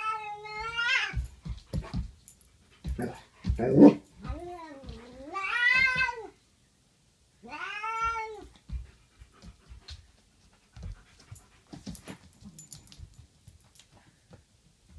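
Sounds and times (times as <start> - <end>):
puppy paws clicking on wooden floor: 0.5 - 6.2, 8.0 - 14.9
cat yowling: 3.7 - 6.3, 7.5 - 8.5.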